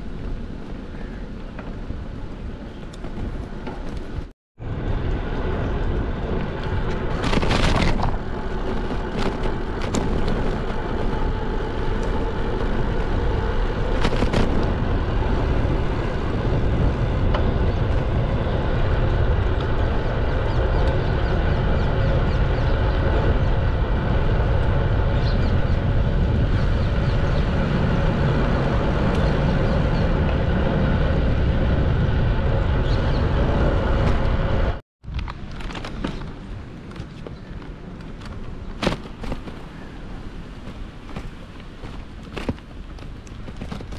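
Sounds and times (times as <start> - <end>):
bicycle tyre noise on asphalt: 0.0 - 43.9
wind buffeting microphone: 0.0 - 43.9.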